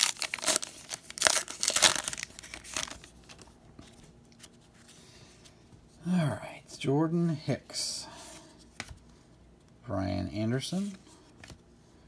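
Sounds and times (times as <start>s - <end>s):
wrapper tearing and crumpling: 0.0s - 3.4s
wrapper handling: 0.0s - 4.5s.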